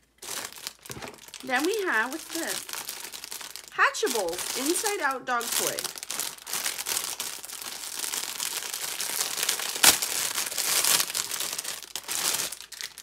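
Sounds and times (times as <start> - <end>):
plastic packaging crinkling: 0.0 - 13.0
sharp loud plastic crack: 9.2 - 11.4.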